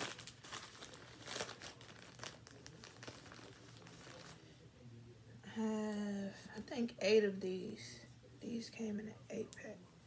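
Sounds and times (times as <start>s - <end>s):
plastic packaging crinkling: 0.0s - 4.4s.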